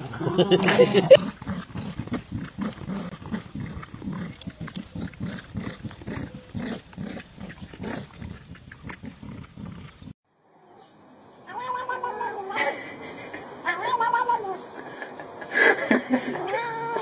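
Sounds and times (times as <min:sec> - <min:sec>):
dogs play-growling: 0:01.2 - 0:10.2.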